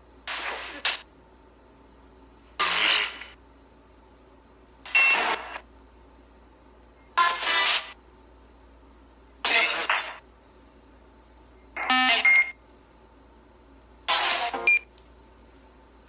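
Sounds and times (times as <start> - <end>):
radio static bursts: 0.3 - 1.0, 2.6 - 3.4, 9.5 - 10.2
broken voice fragments: 9.4 - 10.2.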